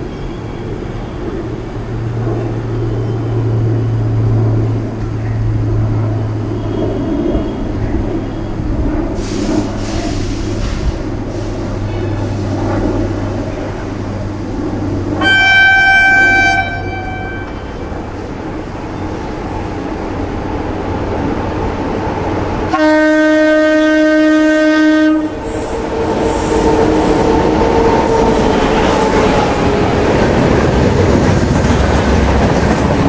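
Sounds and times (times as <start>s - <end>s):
steady train whine: 0.0s - 33.0s
locomotive horn blasts: 15.2s - 17.9s, 22.7s - 29.4s
train wheels clickety-clack: 25.4s - 33.0s.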